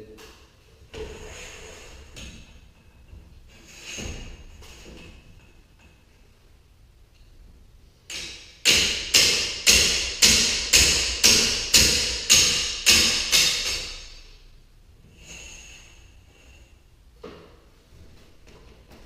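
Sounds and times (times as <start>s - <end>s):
metal tool tapping steel: 8.1s - 14.2s.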